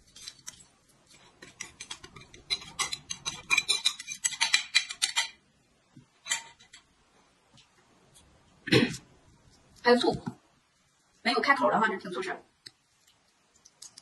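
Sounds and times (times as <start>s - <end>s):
spoon scraping ceramic plate: 0.1s - 5.4s, 6.2s - 6.8s.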